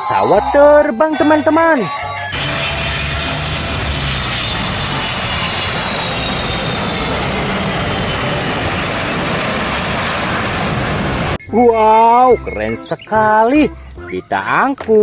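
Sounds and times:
high whine falling in pitch: 1.8s - 12.1s
jet engine noise: 2.3s - 11.4s.

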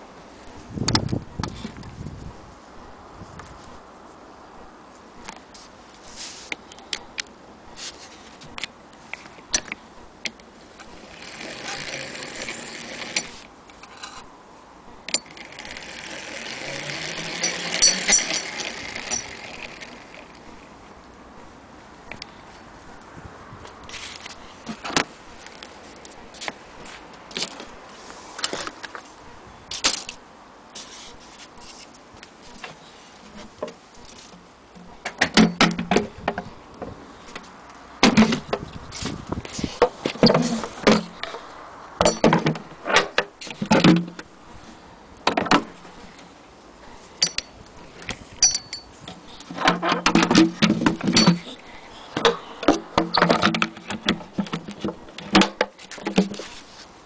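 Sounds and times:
sewing machine clicks and rattles: 11.0s - 13.4s, 15.1s - 20.3s.

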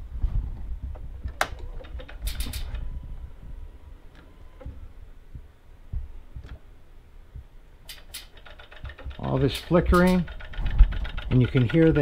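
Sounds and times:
sharp electrical clicking: 1.3s - 2.8s, 7.8s - 12.0s.

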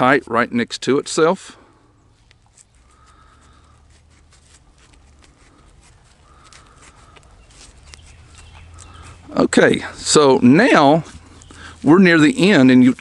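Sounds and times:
twine wrapping clicks and rubbing: 2.2s - 13.0s
faint animal calls: 5.5s - 9.4s.

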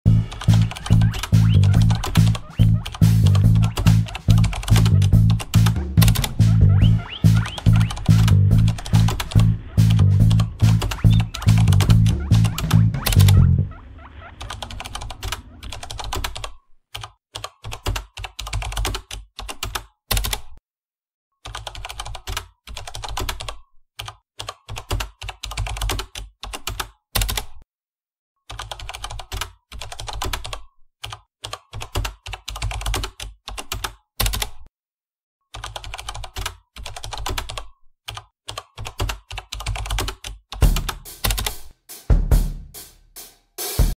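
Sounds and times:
keyboard keys clacking: 0.1s - 17.1s, 38.9s - 41.6s.

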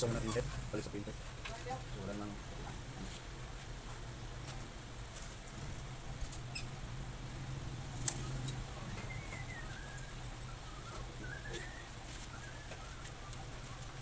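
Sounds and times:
low steady hum: 0.0s - 14.0s
faint chirp: 8.2s - 14.0s.

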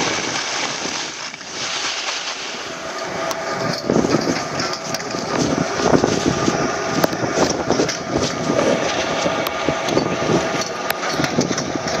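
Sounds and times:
skis scraping over snow: 0.0s - 9.4s.

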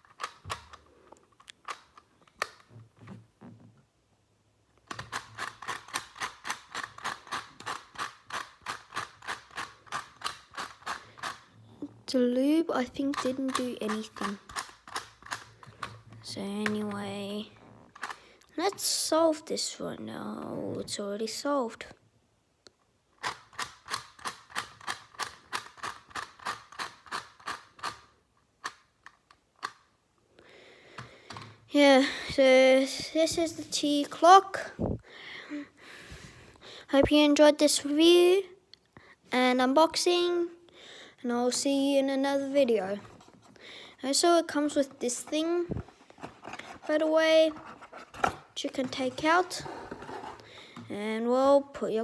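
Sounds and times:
sharp plastic clicks: 0.0s - 2.7s, 4.8s - 11.5s, 13.0s - 17.0s, 22.7s - 29.9s.

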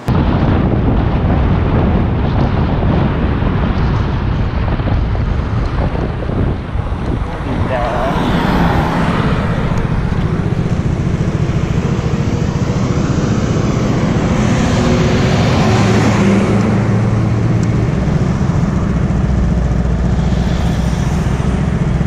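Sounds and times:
highway traffic rumble: 0.0s - 22.0s
car passing: 5.2s - 22.0s.

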